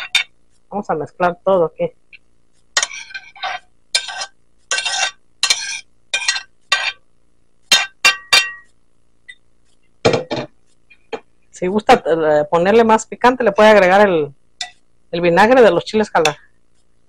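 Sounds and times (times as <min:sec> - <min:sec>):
metal spoon scraping ceramic plate: 0:02.8 - 0:07.0, 0:07.7 - 0:08.7.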